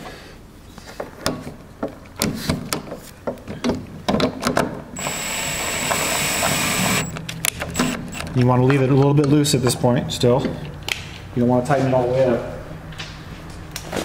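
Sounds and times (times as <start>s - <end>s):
cordless drill whining: 5.0s - 7.1s, 7.7s - 8.3s.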